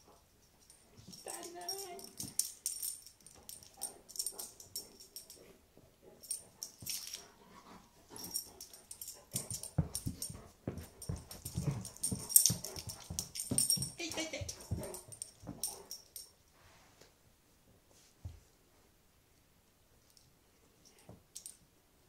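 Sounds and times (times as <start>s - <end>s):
light high clicks and jingles: 0.3s - 5.5s, 6.2s - 16.5s, 20.0s - 21.7s.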